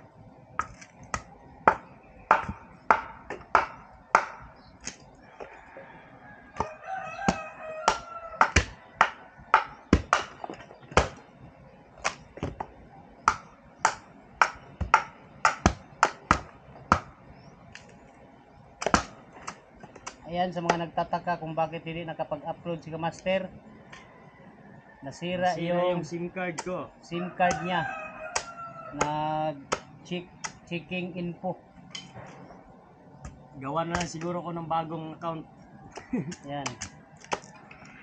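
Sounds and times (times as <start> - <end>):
machete chopping bamboo: 0.6 - 5.0, 6.6 - 11.2, 12.0 - 17.2, 18.8 - 20.9, 26.5 - 26.8, 28.3 - 30.6, 33.3 - 34.4, 36.0 - 37.5
rooster crowing: 5.2 - 9.9, 23.8 - 26.0, 27.0 - 29.4.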